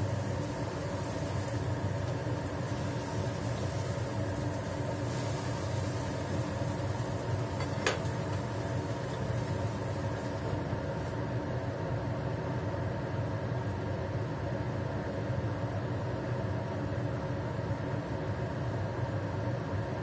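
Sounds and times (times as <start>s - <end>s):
faint hiss: 0.0s - 11.2s
low mechanical hum: 0.0s - 20.0s.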